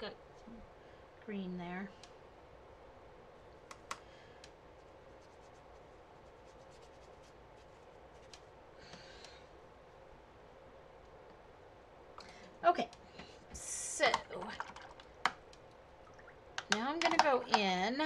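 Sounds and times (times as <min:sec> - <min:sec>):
faint steady hum: 0:00.0 - 0:18.0
paintbrush scratching on paper: 0:04.8 - 0:08.5.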